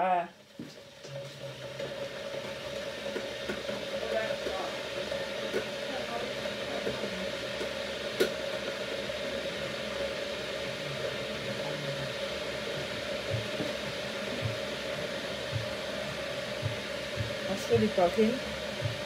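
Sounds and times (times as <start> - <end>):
appliance whirring hum: 0.0 - 19.0.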